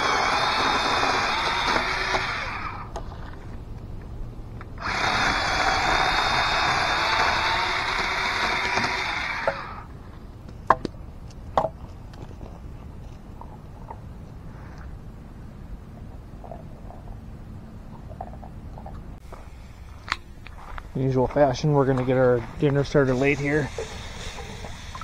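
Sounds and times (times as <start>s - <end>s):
electric chainsaw cutting log: 0.0s - 2.9s, 4.8s - 9.9s.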